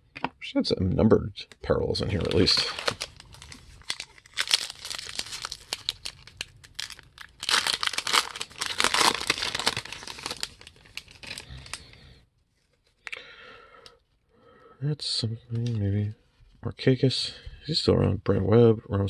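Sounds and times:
cards rustling in the hand: 2.0 - 13.0
foil wrapper crinkling and tearing: 2.1 - 12.0.

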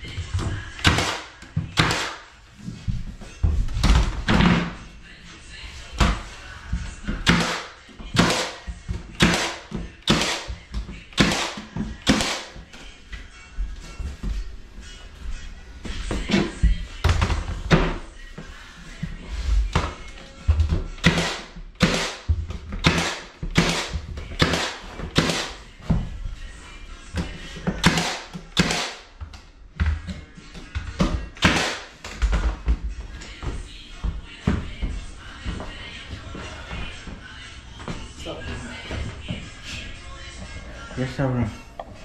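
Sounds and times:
nail gun firing: 0.9 - 2.2, 7.3 - 8.6, 9.2 - 10.5, 11.2 - 12.5, 21.1 - 22.2, 22.9 - 25.5, 27.8 - 29.0, 31.4 - 31.9.

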